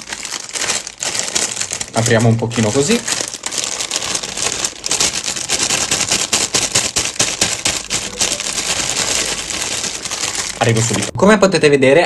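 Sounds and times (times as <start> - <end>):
plastic bag crinkling: 0.0 - 11.2.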